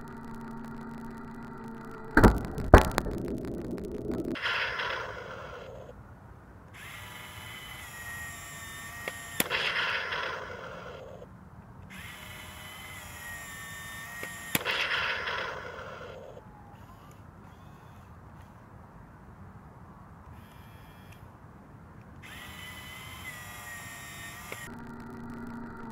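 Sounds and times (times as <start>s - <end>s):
small motor whining: 0.0s - 5.9s, 6.7s - 11.3s, 11.9s - 18.6s, 20.3s - 21.3s, 22.2s - 25.9s
cannon blast sound effect: 2.0s - 4.8s.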